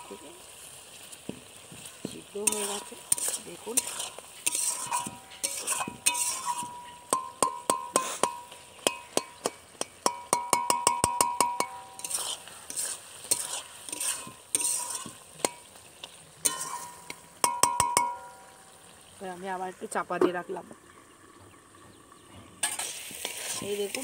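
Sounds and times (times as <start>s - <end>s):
faint sizzle: 0.0s - 24.0s
metal spatula clinking on pan: 2.4s - 15.7s, 16.4s - 18.4s.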